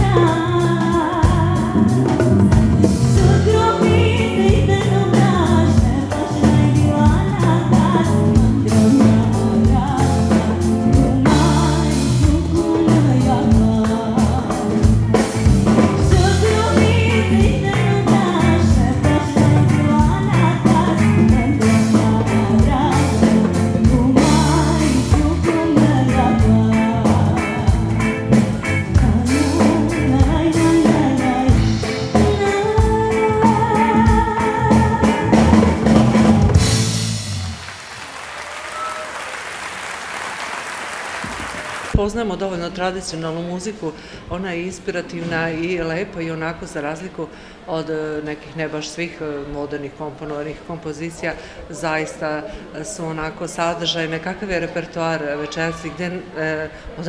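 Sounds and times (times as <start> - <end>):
woman singing: 0.0 - 36.6
electric bass guitar: 0.0 - 37.7
steady drum beat: 0.0 - 37.8.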